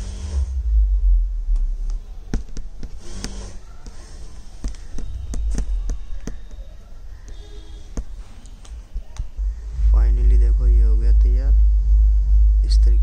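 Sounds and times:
steady low rumble: 0.0s - 2.3s, 9.0s - 13.0s
beads clicking on needle: 1.8s - 9.3s.

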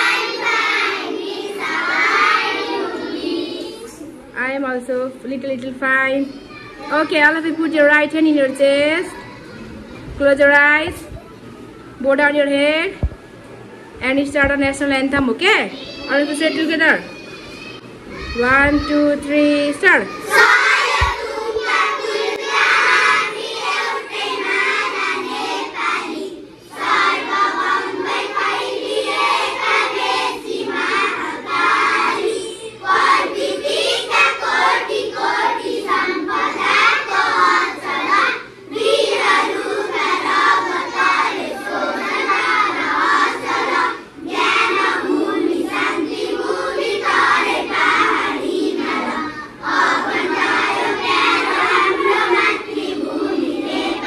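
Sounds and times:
children singing together: 0.0s - 4.2s, 20.1s - 54.0s.

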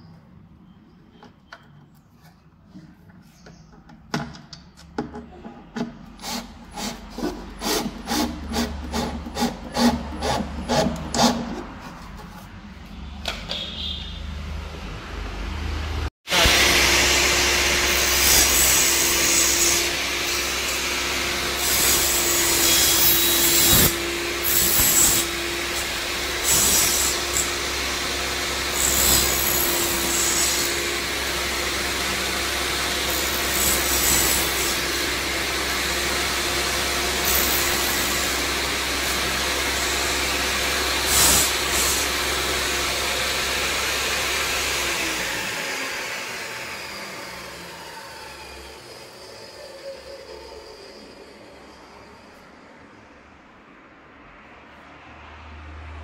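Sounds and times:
table saw cutting timber: 6.2s - 12.2s, 16.3s - 52.4s
table saw running: 16.3s - 52.4s.

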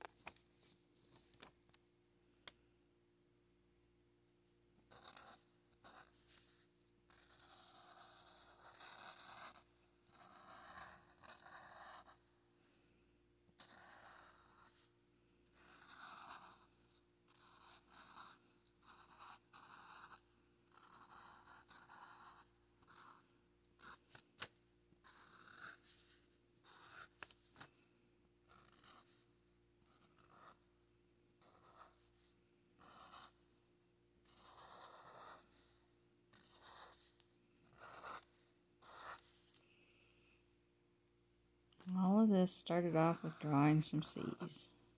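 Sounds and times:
marker scratching on paper: 4.9s - 12.3s, 13.6s - 14.9s, 15.5s - 27.7s, 28.5s - 30.7s, 31.4s - 33.4s, 34.2s - 39.6s, 42.8s - 44.5s.

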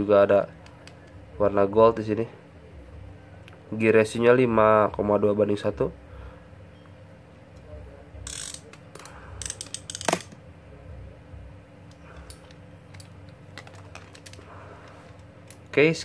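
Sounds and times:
fishing reel mechanical clicks: 8.2s - 10.3s.

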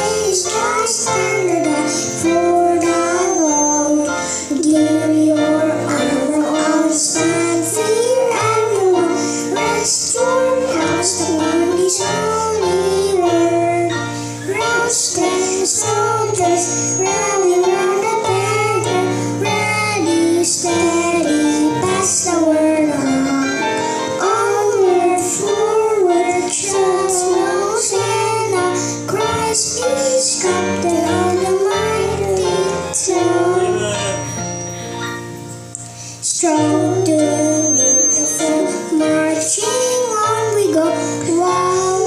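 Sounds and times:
children singing a hymn: 0.0s - 34.8s, 35.7s - 42.0s
instrumental backing track: 0.0s - 42.0s.

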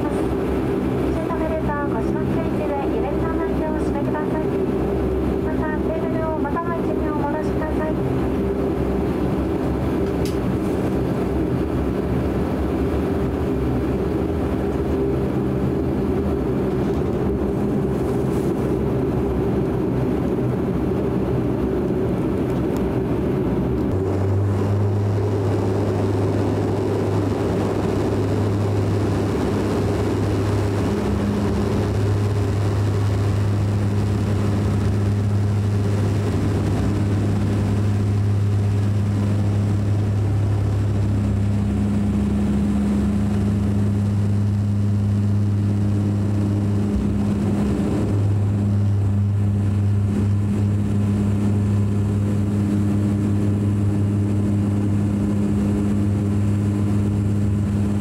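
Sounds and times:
turboprop engines droning: 0.0s - 58.0s.

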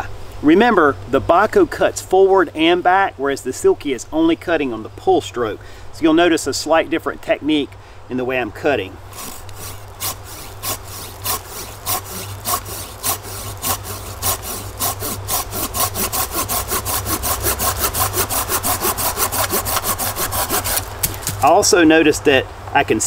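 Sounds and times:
folding saw cutting branch: 9.0s - 21.6s.

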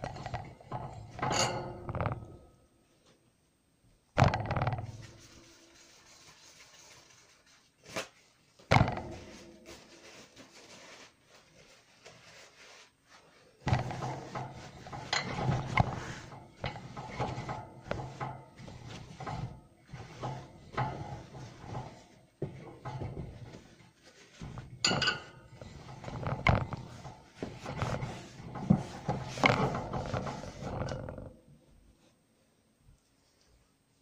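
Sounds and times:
cloth scrubbing plastic tray: 25.8s - 30.8s.

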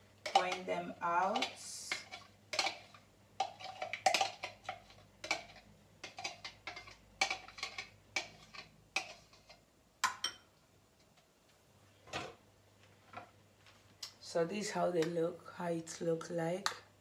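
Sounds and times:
spoon scraping blender jug: 0.2s - 9.6s.

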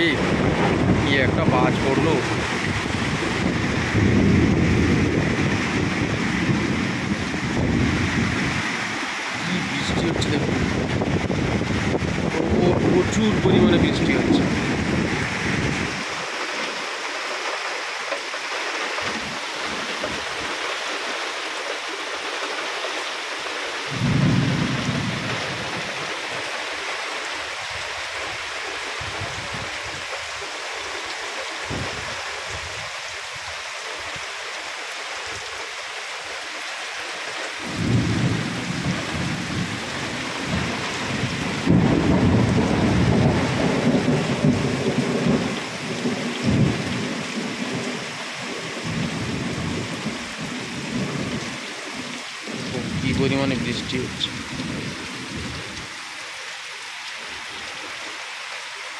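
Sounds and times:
deep thunder rumble: 0.0s - 8.6s, 9.6s - 16.1s, 23.9s - 26.0s, 37.6s - 47.2s
heavy rain pouring: 0.0s - 58.9s.

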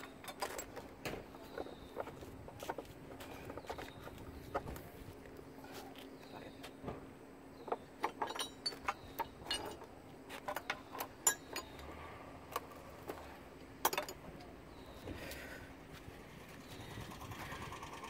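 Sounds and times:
metallic clinks of hand tools: 8.1s - 9.8s, 10.6s - 11.8s.

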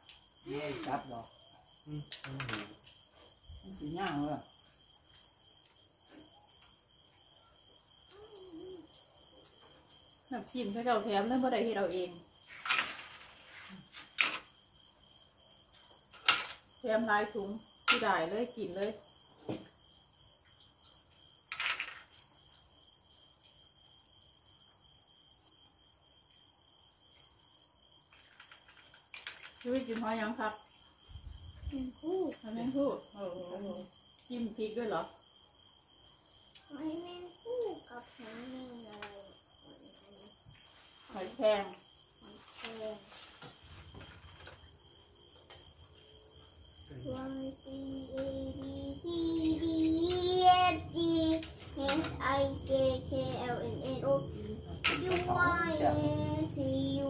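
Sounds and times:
crickets chirring: 0.0s - 57.0s.

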